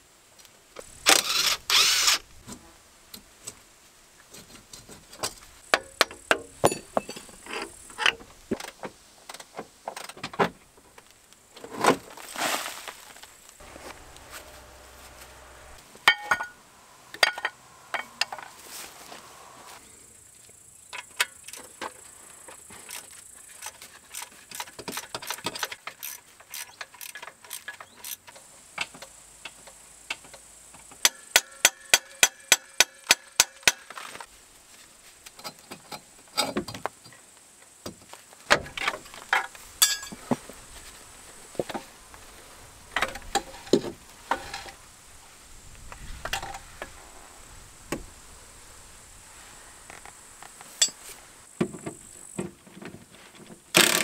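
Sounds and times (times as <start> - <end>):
ratchet wrench clicking: 1.1 - 2.2, 23.6 - 28.2
metal clinks and knocks: 5.2 - 8.2, 16.1 - 16.6, 38.8 - 40.2.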